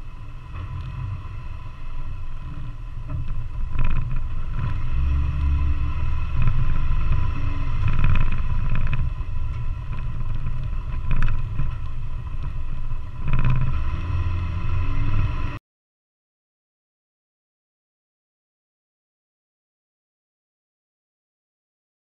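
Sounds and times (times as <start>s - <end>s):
vehicle engine: 0.0s - 15.6s
wind buffeting microphone: 1.9s - 15.6s.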